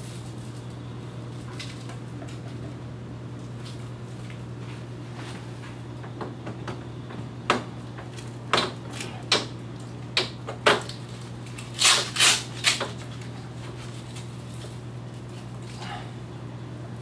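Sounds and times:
velcro straps tearing: 11.5s - 12.9s.

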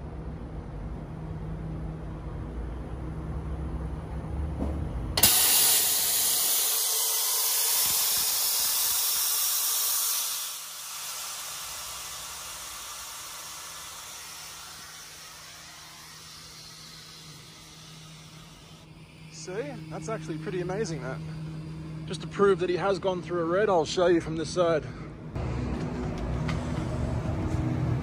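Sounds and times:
train brake air hiss: 5.2s - 22.5s.

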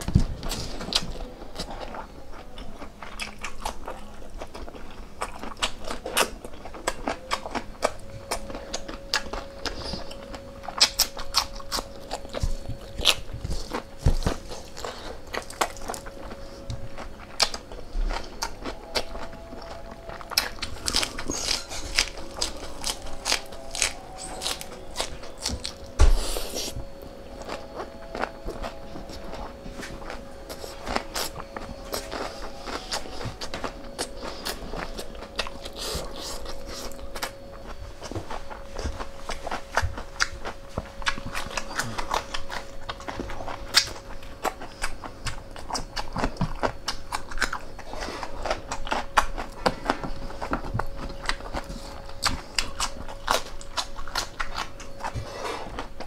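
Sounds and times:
faint steady hum: 0.0s - 56.0s
wet chewing and biting: 0.0s - 56.0s.

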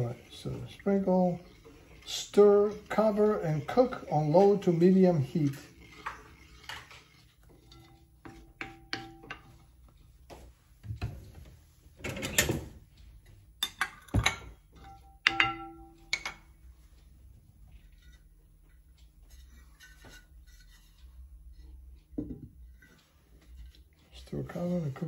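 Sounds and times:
kitchen knocks and clatter: 7.5s - 9.7s, 10.8s - 12.9s, 13.6s - 16.5s, 22.0s - 22.6s
ringing knocks: 14.1s - 16.4s.

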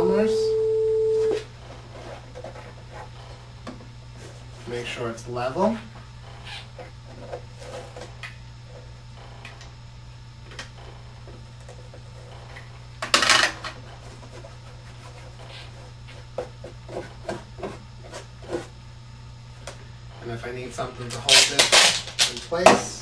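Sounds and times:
steady low hum: 0.0s - 23.0s
cardboard scraping rasp: 14.1s - 18.8s.

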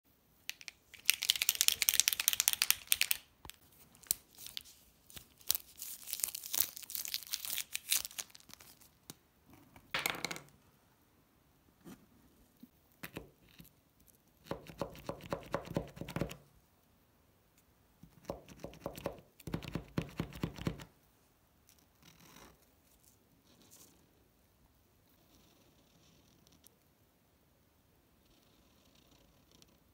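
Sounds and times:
paint marker rattling when shaken: 0.5s - 3.2s.

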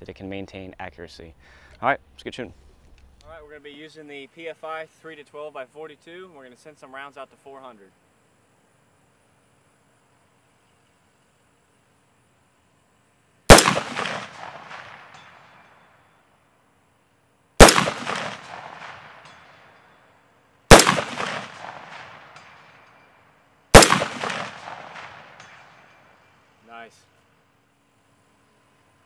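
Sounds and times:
rifle shots with echo: 13.5s - 15.9s, 17.6s - 19.8s, 20.7s - 23.1s, 23.7s - 26.1s.

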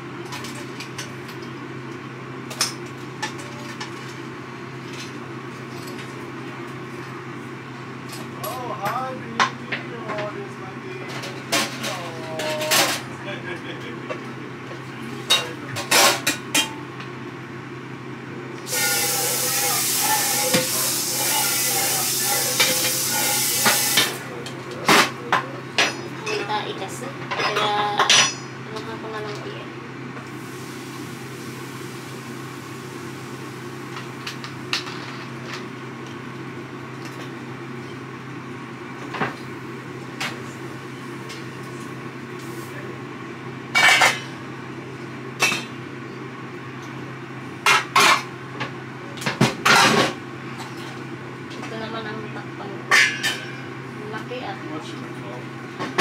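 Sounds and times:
food sizzling in hot oil: 18.6s - 24.2s, 30.3s - 34.6s.

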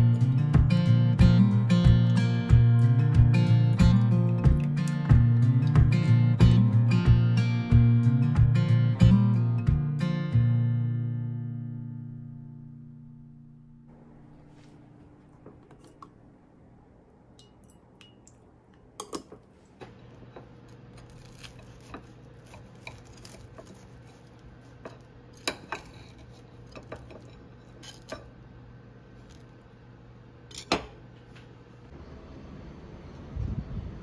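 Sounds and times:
low steady hum: 0.0s - 34.0s
knife crunching through toast: 20.2s - 28.3s.

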